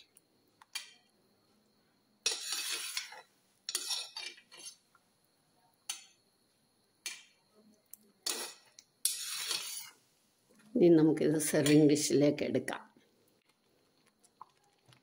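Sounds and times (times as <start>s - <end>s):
spoon scraping metal pot: 2.2s - 4.9s, 8.2s - 10.0s.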